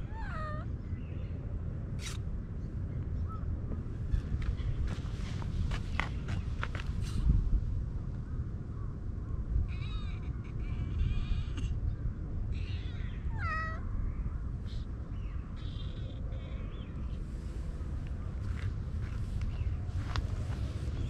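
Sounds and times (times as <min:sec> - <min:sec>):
cat meowing: 0:00.0 - 0:00.7, 0:12.7 - 0:13.8.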